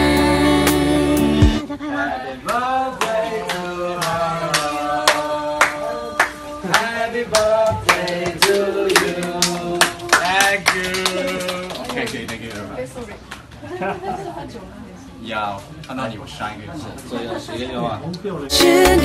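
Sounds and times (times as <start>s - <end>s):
group of people singing: 0.0s - 10.4s, 18.5s - 19.0s
people clapping in time: 2.4s - 13.6s.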